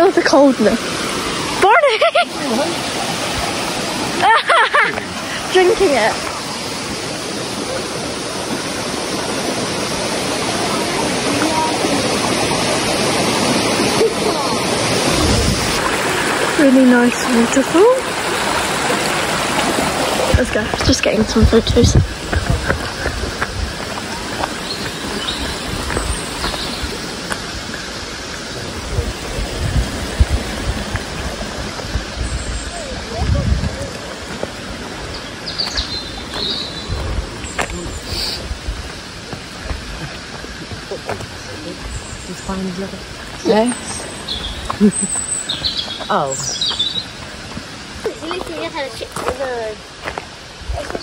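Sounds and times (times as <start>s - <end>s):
stream water flowing over rocks: 0.0s - 51.0s
footsteps on footpath: 20.3s - 27.5s, 35.6s - 37.9s, 38.7s - 42.0s, 43.3s - 49.4s, 50.0s - 51.0s.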